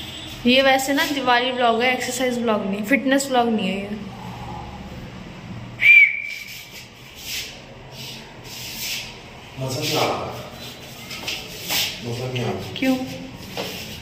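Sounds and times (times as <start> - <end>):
palms rubbing together: 6.3 - 14.0.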